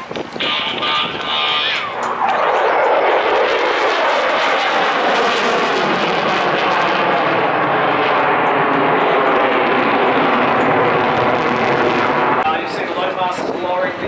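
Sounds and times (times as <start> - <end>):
fighter jet flying overhead: 0.0 - 14.0.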